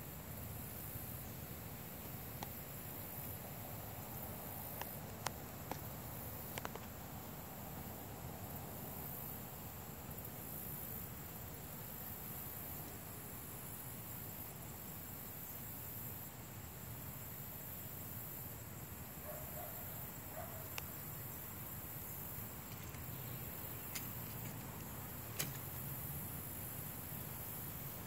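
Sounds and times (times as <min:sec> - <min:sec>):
high-pitched insect chorus: 0:00.0 - 0:28.0
small sharp clicks: 0:22.6 - 0:24.7, 0:25.3 - 0:25.8.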